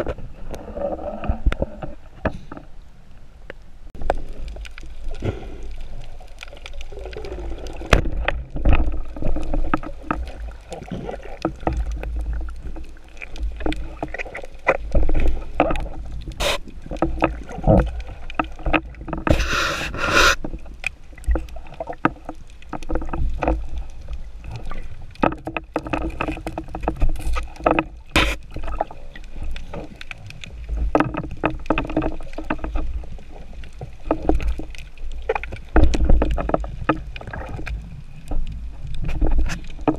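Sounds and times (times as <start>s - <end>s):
underwater rumble of moving water: 0.0s - 39.9s
short hiss: 19.3s - 20.4s
clicks and knocks of gear: 20.4s - 39.9s.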